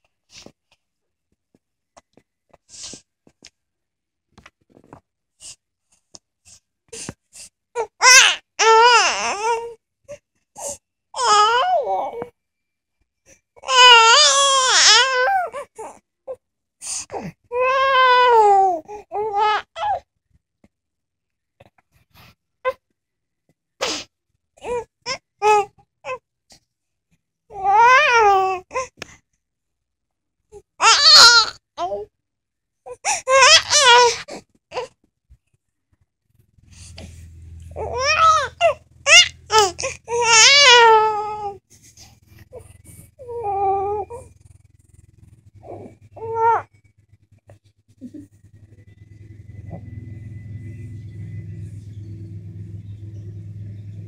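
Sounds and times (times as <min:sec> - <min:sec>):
baby fussing and crying: 0:07.8 - 0:09.8, 0:10.6 - 0:12.3, 0:13.6 - 0:16.4, 0:17.1 - 0:20.0, 0:24.6 - 0:26.2, 0:27.5 - 0:29.0, 0:32.9 - 0:34.9, 0:36.8 - 0:44.4, 0:45.6 - 0:46.7
baby calling: 0:33.3 - 0:34.3, 0:37.8 - 0:41.6, 0:43.2 - 0:44.3, 0:45.6 - 0:46.7
low steady hum: 0:36.3 - 0:54.0.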